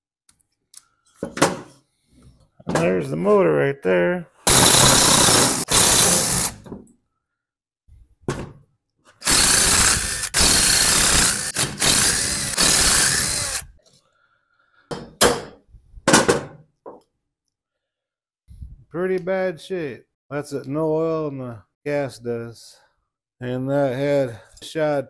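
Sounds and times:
cordless impact driver running: 0:04.5 - 0:06.6, 0:09.2 - 0:13.7.

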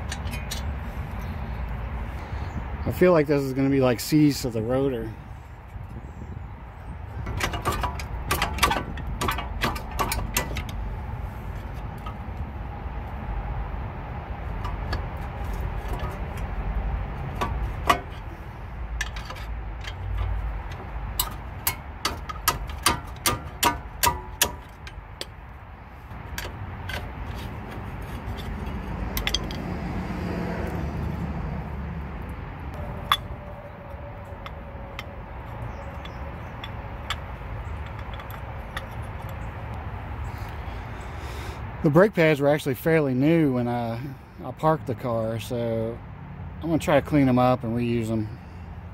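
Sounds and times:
sharp metal knocks: 0:07.2 - 0:10.9, 0:17.2 - 0:25.4, 0:26.2 - 0:29.7, 0:32.7 - 0:39.5.

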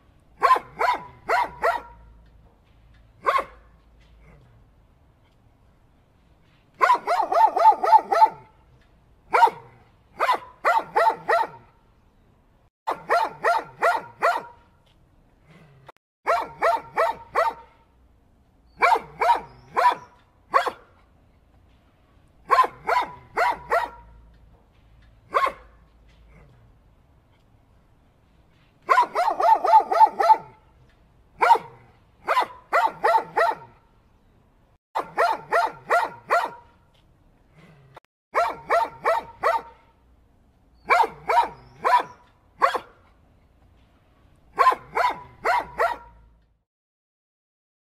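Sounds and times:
dog barking: 0:00.4 - 0:02.1, 0:03.2 - 0:03.7, 0:06.8 - 0:08.5, 0:09.3 - 0:11.7, 0:12.9 - 0:14.6, 0:16.2 - 0:17.8, 0:18.8 - 0:20.9, 0:22.5 - 0:24.2, 0:25.3 - 0:25.8, 0:28.9 - 0:30.6, 0:31.4 - 0:33.8, 0:35.0 - 0:36.8, 0:38.3 - 0:39.9, 0:40.8 - 0:43.0, 0:44.6 - 0:46.2.

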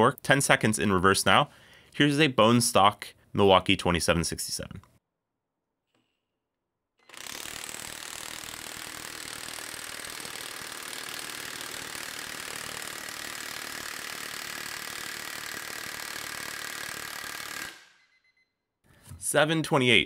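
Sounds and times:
impact wrench hammering: 0:07.0 - 0:18.0.

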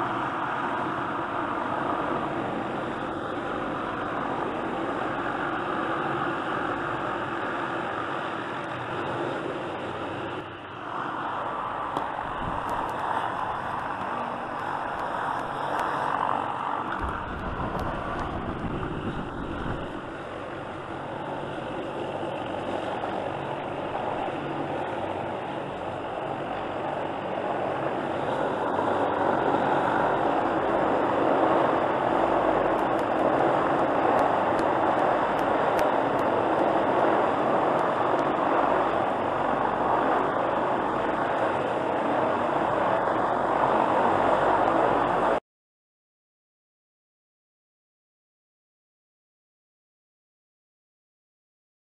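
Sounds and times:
helicopter hovering: 0:00.0 - 0:45.4.

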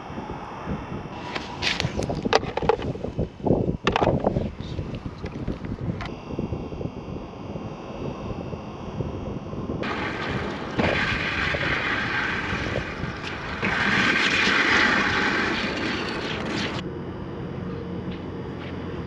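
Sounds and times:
wind buffeting microphone: 0:00.0 - 0:16.9
loud hissing: 0:09.8 - 0:16.8.

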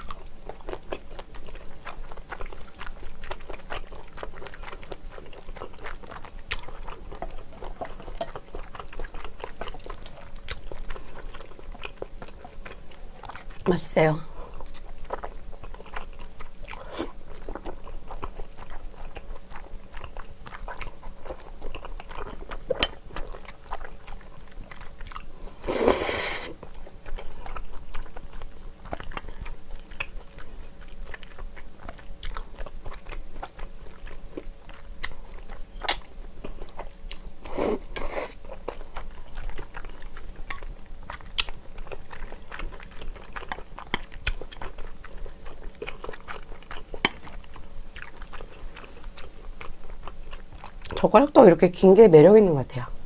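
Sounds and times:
wet chewing: 0:00.0 - 0:51.4
slurping noodles: 0:25.6 - 0:26.6.

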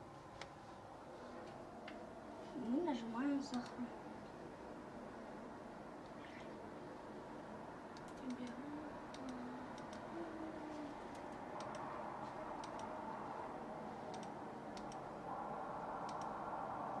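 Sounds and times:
computer mouse clicking: 0:03.5 - 0:03.8, 0:07.9 - 0:10.1, 0:11.1 - 0:11.9, 0:12.6 - 0:12.9, 0:14.1 - 0:15.0, 0:16.0 - 0:16.4.

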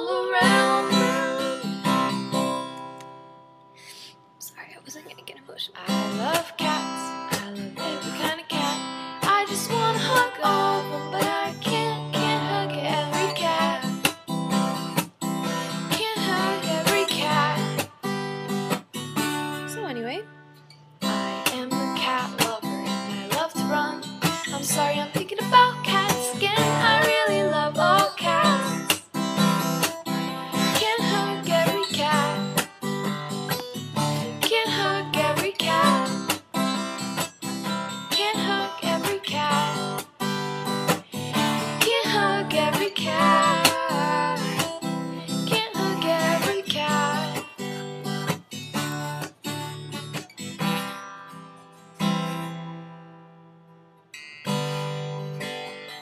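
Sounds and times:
person singing: 0:00.0 - 0:01.8, 0:05.8 - 0:14.0, 0:15.6 - 0:17.9, 0:21.4 - 0:29.0, 0:30.4 - 0:32.7, 0:34.2 - 0:36.4, 0:38.1 - 0:40.1, 0:40.9 - 0:47.7
strummed acoustic guitar: 0:00.0 - 0:56.0.

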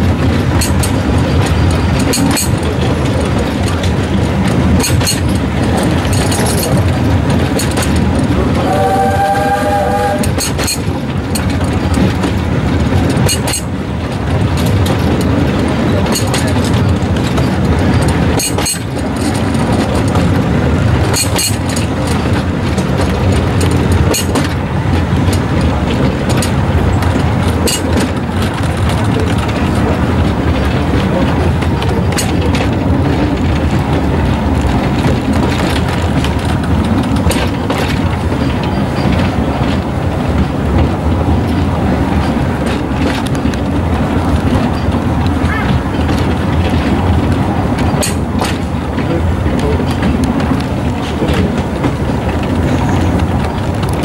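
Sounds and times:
rail clicks and knocks: 0:00.0 - 0:54.0
train wheels rumbling: 0:00.0 - 0:54.0.

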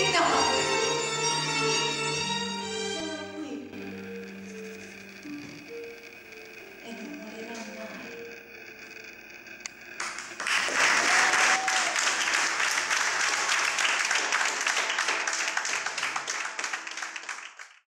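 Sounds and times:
faint music: 0:00.0 - 0:09.9
audience applauding: 0:10.0 - 0:17.8.

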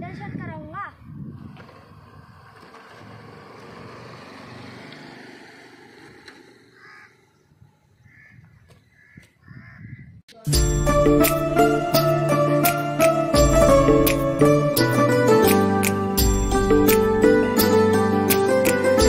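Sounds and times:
outdoor background noise: 0:00.0 - 0:10.5
crow cawing: 0:06.6 - 0:10.1
loud music: 0:10.5 - 0:19.0.

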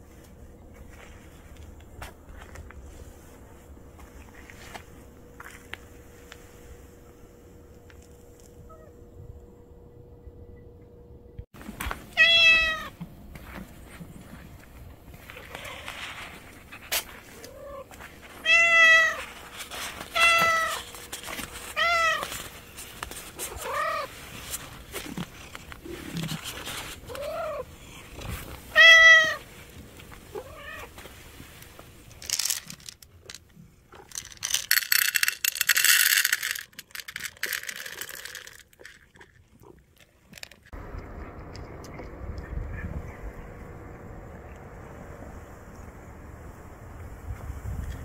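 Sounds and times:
cat meowing: 0:12.2 - 0:12.9, 0:23.5 - 0:24.1
cat kibble poured into bowl: 0:34.0 - 0:39.4.

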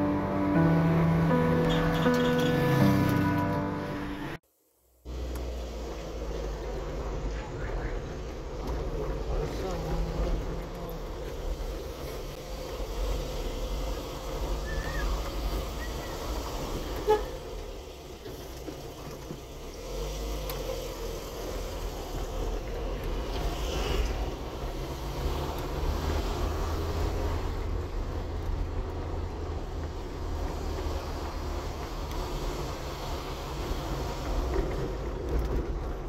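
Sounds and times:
car engine and tyre rumble: 0:00.0 - 0:36.0.

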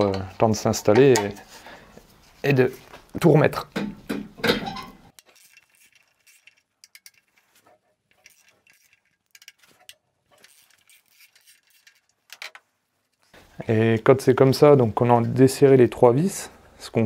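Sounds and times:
ratchet wrench clicking: 0:05.2 - 0:07.4, 0:08.1 - 0:12.5.

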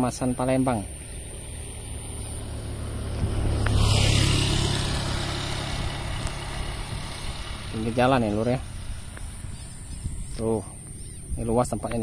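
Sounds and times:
motor scooter passing by: 0:00.4 - 0:11.4.

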